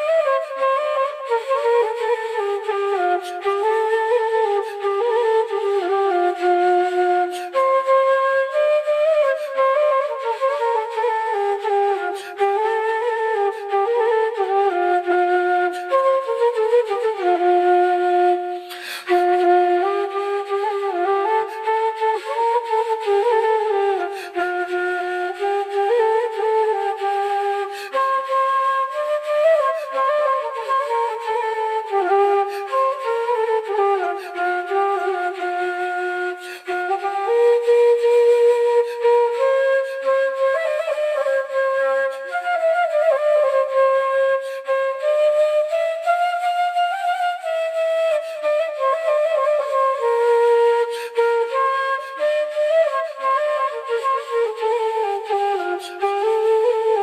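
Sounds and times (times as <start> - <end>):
bamboo flute melody: 0.0 - 57.0.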